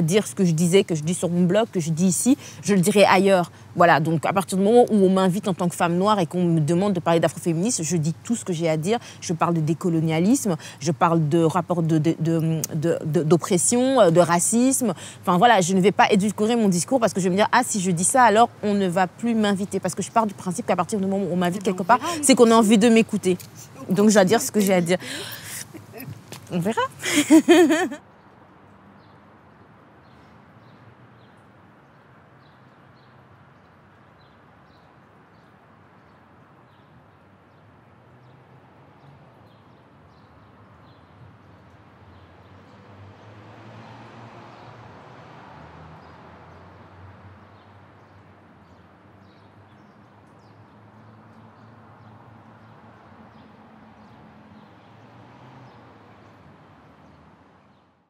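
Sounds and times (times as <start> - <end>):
small birds chirping: 11.8 - 43.4, 47.4 - 58.0.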